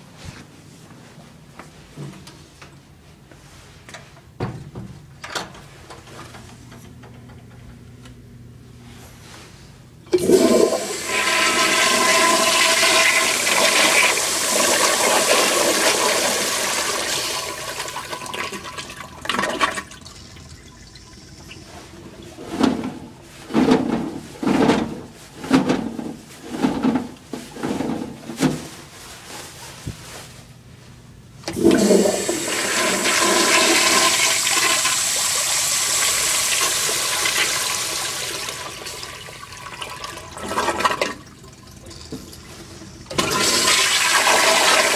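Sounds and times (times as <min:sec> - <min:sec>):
toilet flushing: 0:10.1 - 0:23.9, 0:31.4 - 0:44.9.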